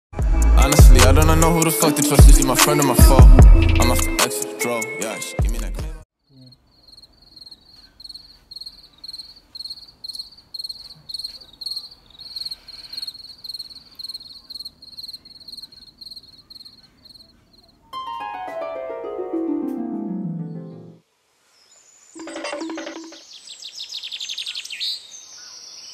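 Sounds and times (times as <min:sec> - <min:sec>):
music: 0:00.2 - 0:06.0, 0:18.0 - 0:21.0
cricket chirping: 0:06.2 - 0:17.9.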